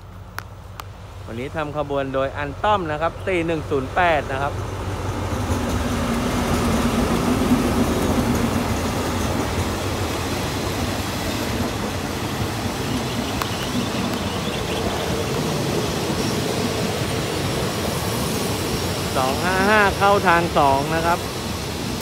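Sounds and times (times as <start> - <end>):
locomotive engine: 0.0 - 22.0
train wheels rumbling on rails: 0.0 - 22.0.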